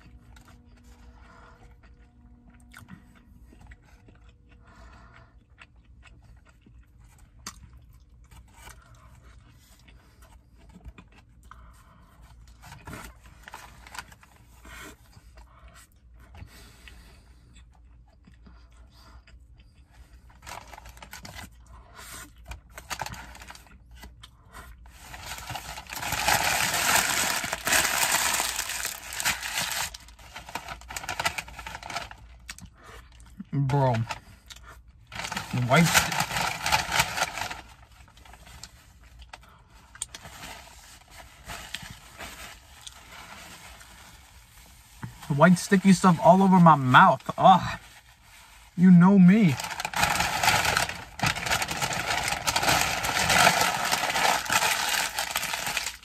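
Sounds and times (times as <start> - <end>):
person chewing: 0.0 - 31.6, 34.2 - 35.5
paper wrapper rustling: 24.9 - 32.3, 35.1 - 38.8, 49.3 - 56.0.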